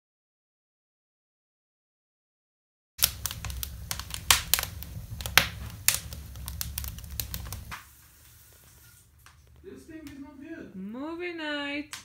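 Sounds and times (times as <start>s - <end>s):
low rumble of flames: 3.0s - 9.7s
wood fire crackling and popping: 3.0s - 10.4s.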